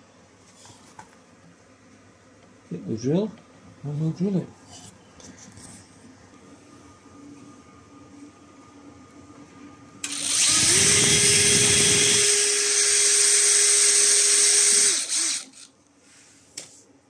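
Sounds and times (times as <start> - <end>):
cordless drill drilling into wood: 10.0 - 15.7.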